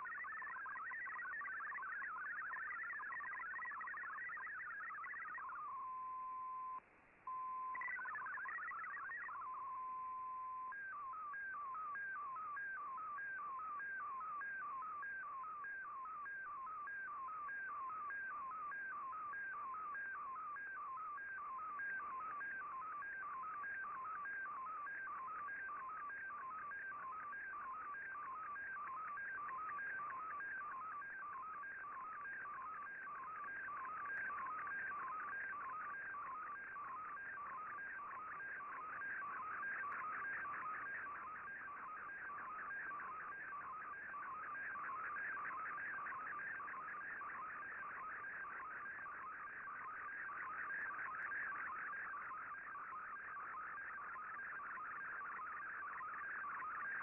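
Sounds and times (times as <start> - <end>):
hopping data tones: 0.0 - 5.8, 7.7 - 9.5
repeating warble of data transmission: 0.0 - 6.2, 7.6 - 57.0
steady radio tone: 0.0 - 57.0.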